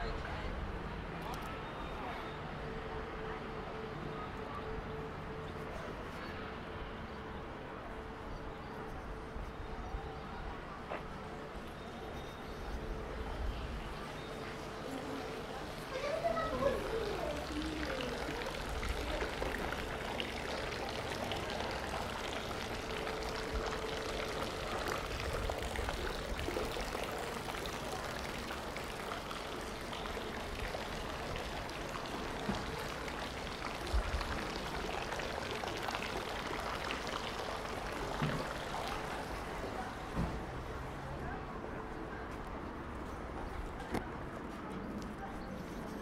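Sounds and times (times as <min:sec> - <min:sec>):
running water splashing: 0:15.3 - 0:40.7.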